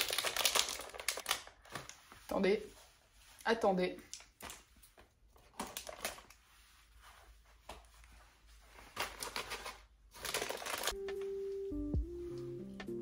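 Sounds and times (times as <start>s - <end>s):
snack bag crinkling: 0.0s - 1.9s, 9.0s - 11.0s
music with held note: 11.0s - 13.0s.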